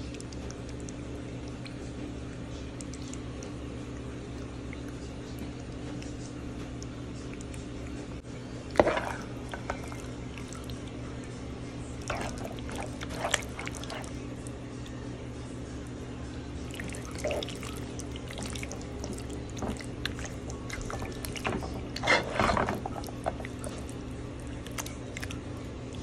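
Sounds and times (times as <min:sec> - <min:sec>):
steady low hum: 0:00.0 - 0:26.0
wet squelching of pasta stirred: 0:08.6 - 0:26.0.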